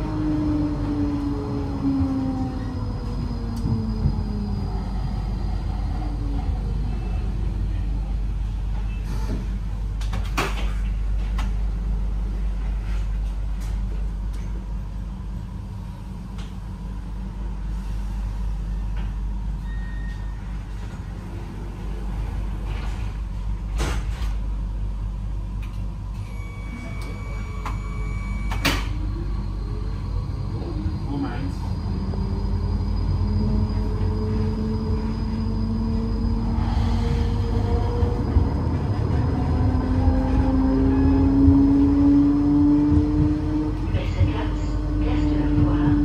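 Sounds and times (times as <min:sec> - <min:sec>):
low rumble: 0:20.8 - 0:46.0
high beep: 0:26.2 - 0:28.8.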